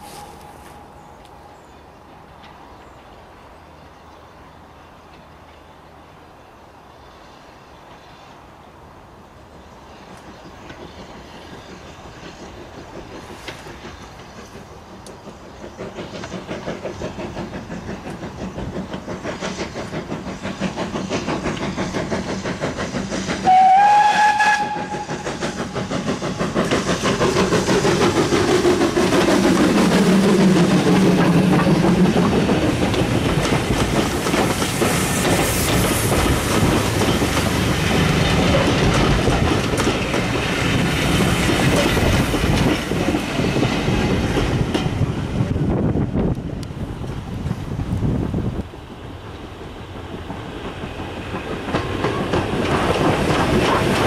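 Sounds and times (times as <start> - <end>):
coach wheels clickety-clack: 9.8 - 54.0
steam locomotive exhaust beat: 10.0 - 54.0
steam whistle blast: 23.4 - 25.2.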